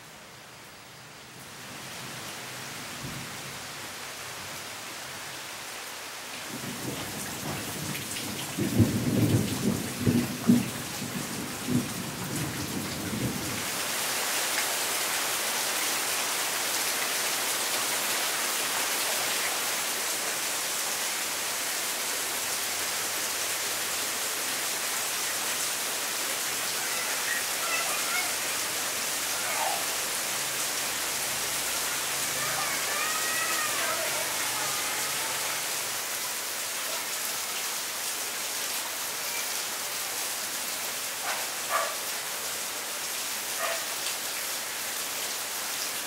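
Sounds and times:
heavy rain on leaves: 0.0s - 46.0s
thunder rumbling: 6.5s - 13.6s.

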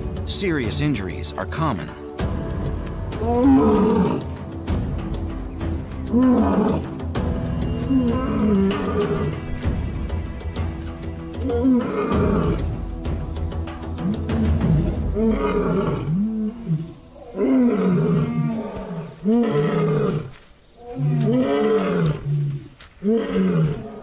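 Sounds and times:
lion roaring: 3.2s - 4.3s, 6.1s - 7.0s, 7.9s - 9.4s, 11.4s - 12.7s, 14.0s - 24.0s.

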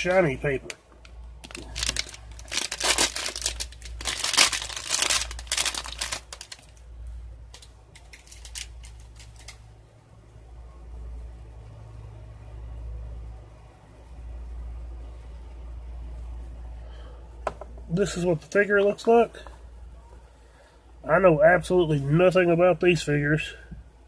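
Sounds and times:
foil wrapper crinkling: 1.4s - 6.8s, 7.5s - 9.6s.

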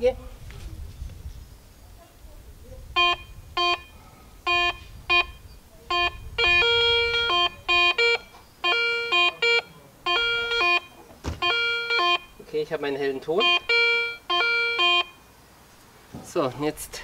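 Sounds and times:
metal detector beeping: 3.0s - 12.4s, 13.1s - 15.2s.

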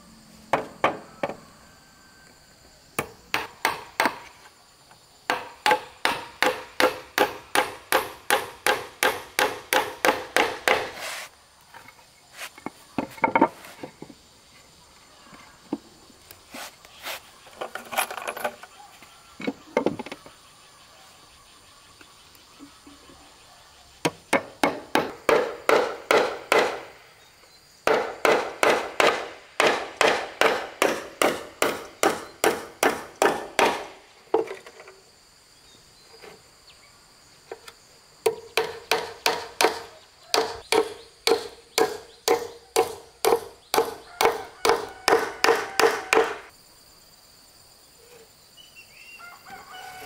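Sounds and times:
high insect drone: 0.0s - 50.0s
bird chirps: 48.0s - 49.4s.

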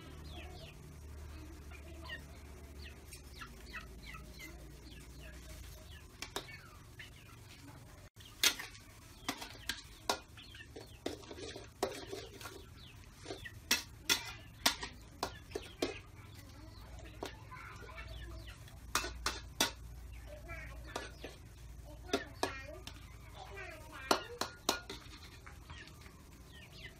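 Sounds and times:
chicken clucking: 1.4s - 8.4s, 9.1s - 20.3s
metal spatula scraping a wok: 8.3s - 16.0s, 18.9s - 19.9s, 24.4s - 25.4s.

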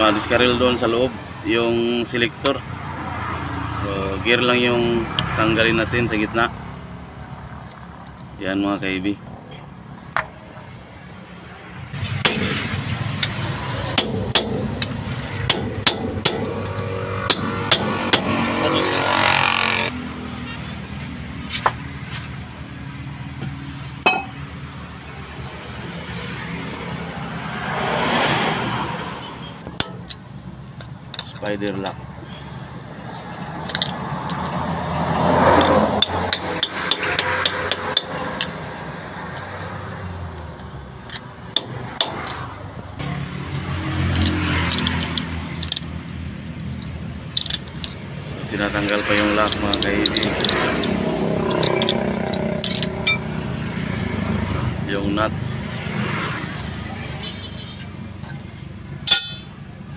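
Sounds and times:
screwdriver clicking and scraping metal: 44.0s - 46.0s, 46.8s - 48.0s, 49.0s - 53.3s
steel parts clinking: 44.1s - 45.9s, 46.8s - 48.1s, 49.1s - 53.5s, 56.6s - 59.6s.

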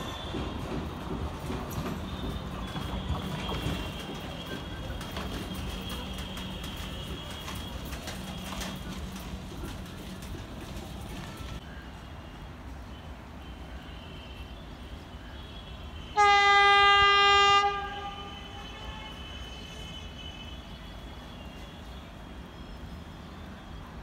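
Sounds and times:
train horn blast: 15.8s - 20.9s.

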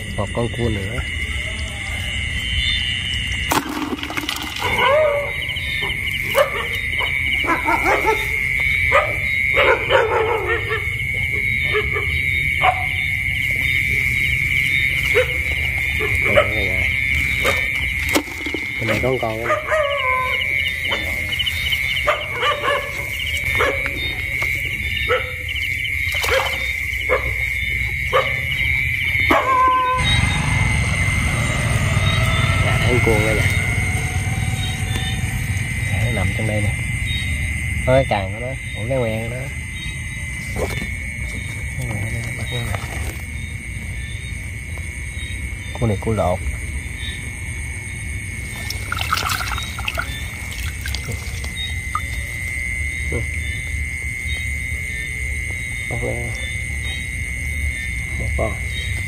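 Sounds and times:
high trilling of frogs or insects: 0.0s - 59.0s
dog barking: 4.6s - 13.1s, 15.0s - 17.8s, 18.8s - 21.4s, 22.0s - 24.4s, 25.0s - 25.6s, 26.2s - 30.1s.

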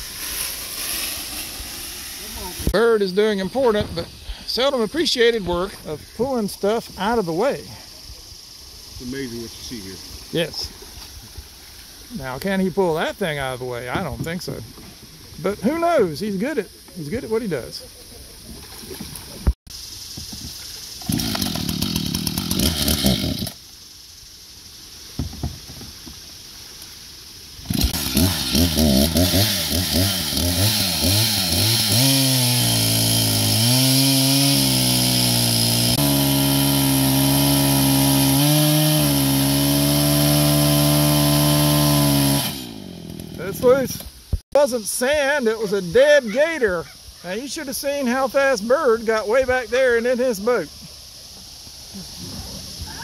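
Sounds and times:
chainsaw cutting log: 0.0s - 2.8s, 21.0s - 23.6s, 27.6s - 44.1s.

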